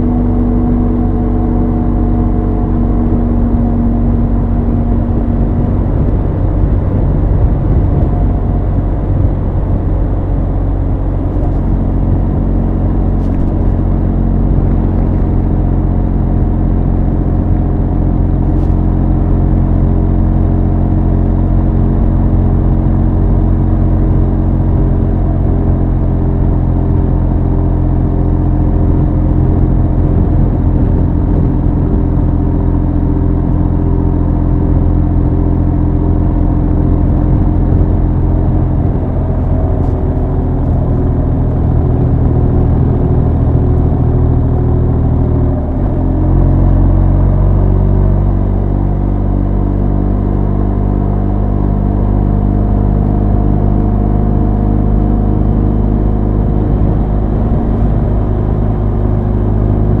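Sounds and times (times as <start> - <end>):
motorcycle engine running: 0.0 - 60.0.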